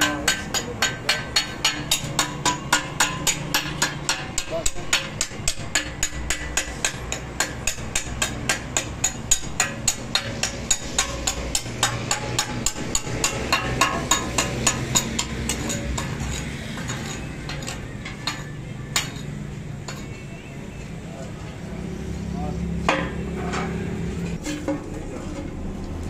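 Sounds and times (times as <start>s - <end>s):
scattered knocks: 0.0s - 19.2s
hammering on metal: 0.0s - 20.1s.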